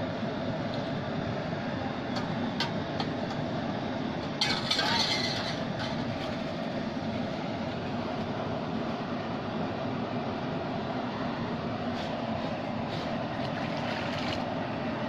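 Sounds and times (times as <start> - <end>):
cooking burners roaring: 0.0 - 15.0
burner hiss: 3.2 - 13.4.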